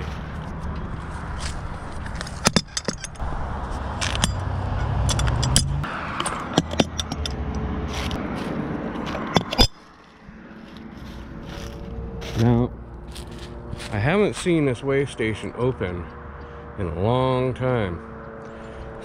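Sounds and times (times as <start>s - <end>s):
truck engine rumbling: 0.0s - 19.0s
keys jangling: 5.0s - 7.4s.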